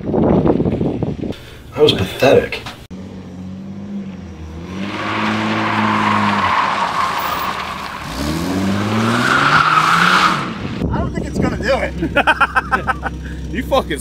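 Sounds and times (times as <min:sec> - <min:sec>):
car engine revving: 0:02.9 - 0:10.8
tyres squealing: 0:04.7 - 0:10.5.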